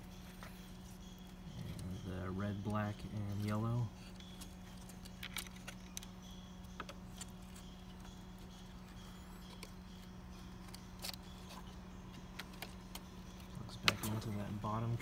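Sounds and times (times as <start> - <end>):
steady low hum: 0.0 - 15.0
plastic and metal handling noises: 2.9 - 6.1, 9.4 - 14.6.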